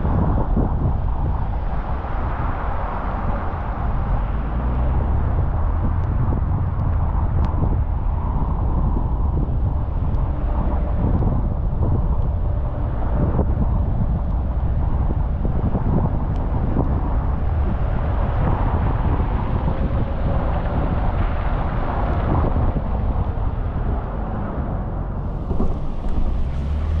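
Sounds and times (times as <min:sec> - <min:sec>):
car tyres on wet road: 0:00.0 - 0:27.0.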